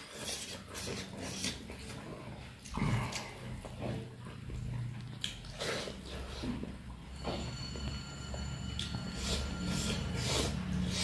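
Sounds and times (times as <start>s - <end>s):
man chewing rice: 0.0s - 11.0s
low nasal hum: 5.5s - 11.0s.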